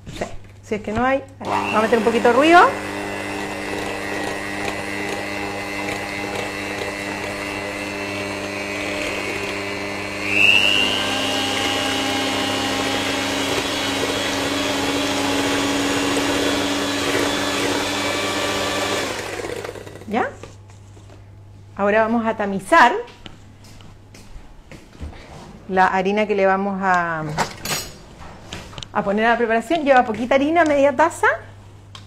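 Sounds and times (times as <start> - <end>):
electric hand mixer running: 1.4 - 20.1.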